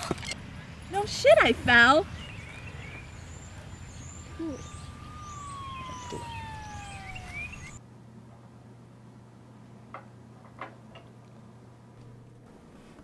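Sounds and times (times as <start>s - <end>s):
small birds chirping: 0.5s - 7.8s
room hum: 2.4s - 13.0s
siren long falling tone: 2.9s - 7.8s.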